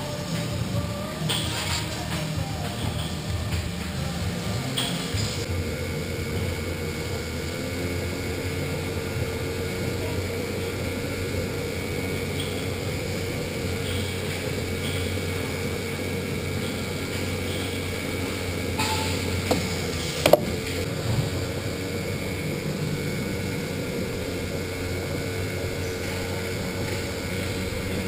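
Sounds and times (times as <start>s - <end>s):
electric motor hum and whine: 0.0s - 28.0s
tyre and chassis noise: 0.0s - 28.0s.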